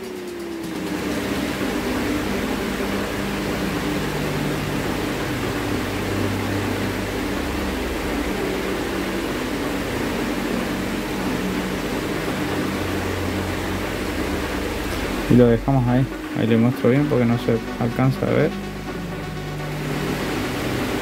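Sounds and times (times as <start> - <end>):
machine hum with hiss: 0.0 - 21.0.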